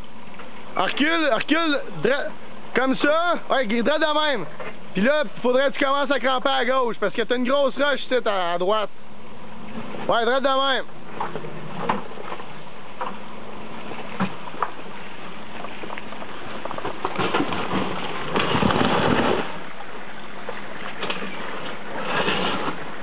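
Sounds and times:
noisy hiss: 0:00.0 - 0:23.0
tyres knocking on rocks: 0:15.6 - 0:19.6.

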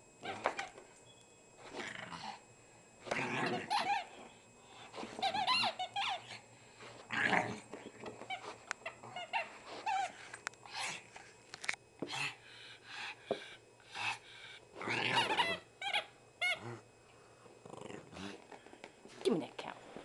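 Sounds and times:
dog toy squeaking: 0:03.4 - 0:04.1, 0:05.1 - 0:06.4, 0:15.2 - 0:16.6.

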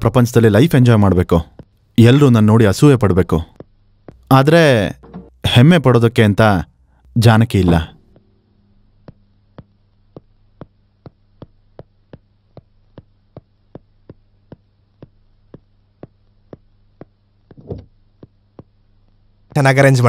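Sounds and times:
steady low hum: 0:00.0 - 0:20.0
hard-soled footsteps on stone: 0:03.5 - 0:04.3, 0:09.0 - 0:18.8.

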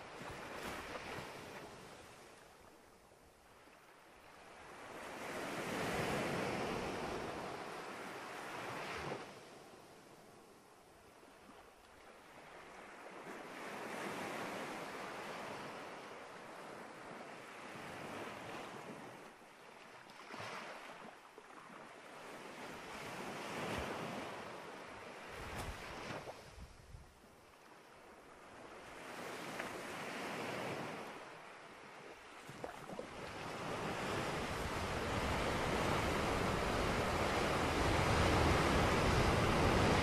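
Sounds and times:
small waves washing onto beach: 0:00.0 - 0:40.0.

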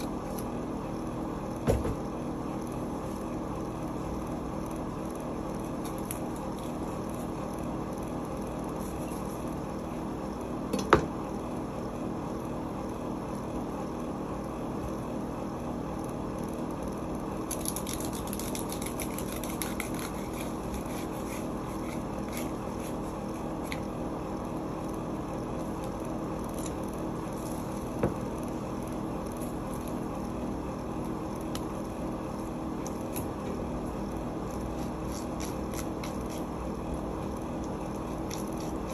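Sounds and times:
kitchen hum: 0:00.0 - 0:38.9
knife scraping and ticking: 0:17.4 - 0:24.0, 0:25.5 - 0:28.6, 0:34.4 - 0:36.6, 0:37.5 - 0:38.9.

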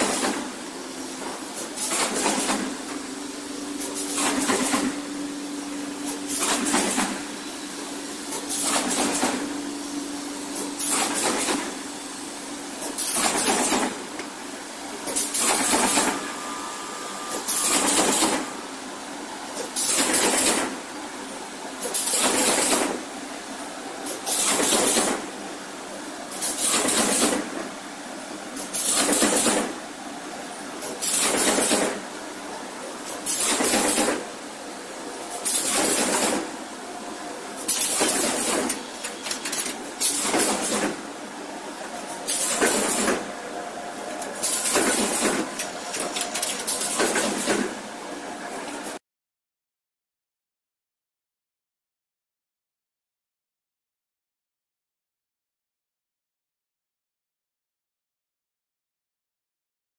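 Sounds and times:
background machine noise: 0:00.0 - 0:49.0
machine stroke bursts: 0:15.0 - 0:20.8.

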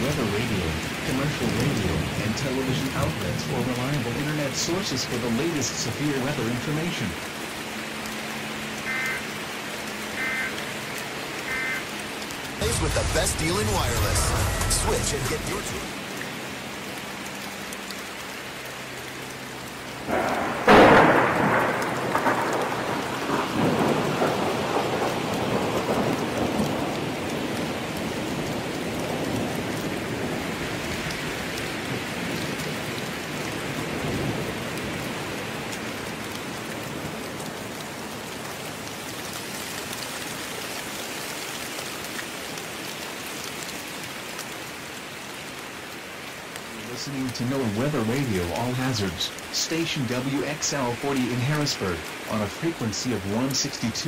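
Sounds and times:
heavy rain: 0:00.0 - 0:54.0
thunder crack and rumble: 0:20.1 - 0:35.4.

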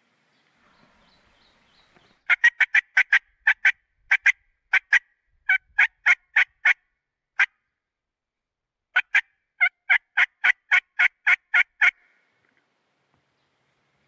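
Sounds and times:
turkey mouth call hen calls: 0:02.3 - 0:06.8, 0:09.0 - 0:12.1.

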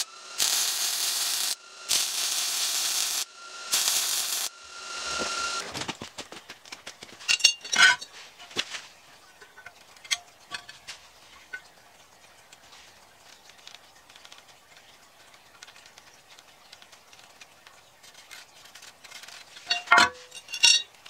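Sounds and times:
metal parts clinking and knocking: 0:07.0 - 0:08.6, 0:09.4 - 0:11.7, 0:19.2 - 0:21.0.

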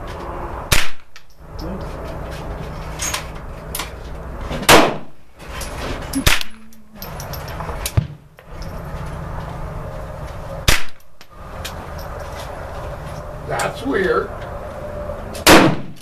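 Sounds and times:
faint gunshots: 0:04.7 - 0:05.1, 0:15.4 - 0:16.0
loud gunshots: 0:04.7 - 0:05.1, 0:15.4 - 0:16.0.

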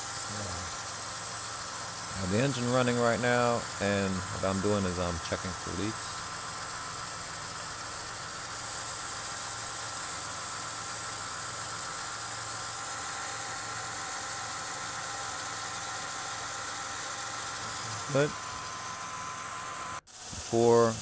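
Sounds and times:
high hiss: 0:00.0 - 0:12.7
car engine running: 0:00.0 - 0:20.9.

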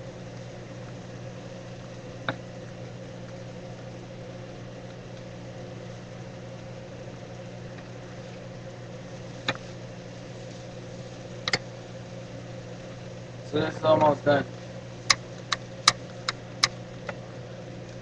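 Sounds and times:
food frying in a pan: 0:00.0 - 0:18.0.

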